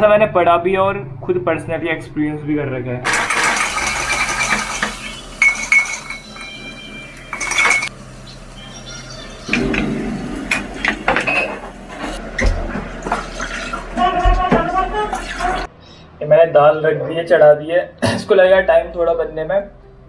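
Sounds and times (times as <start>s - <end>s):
metal utensils clinking on pots: 3.1s - 7.9s, 10.4s - 12.2s.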